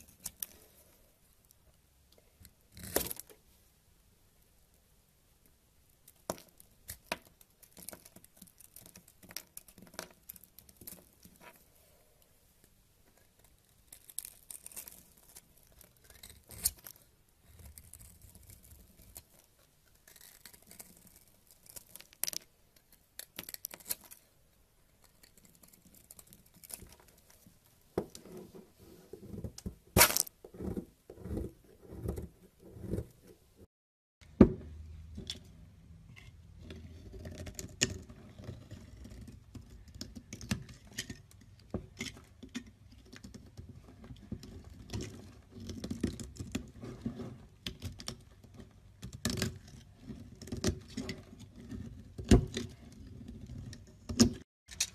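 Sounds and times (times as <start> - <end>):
knife cutting crumbly soap: 2.4 - 3.4, 6.0 - 12.0, 13.1 - 33.4, 36.2 - 54.9
blade shaving soap: 13.4 - 24.2.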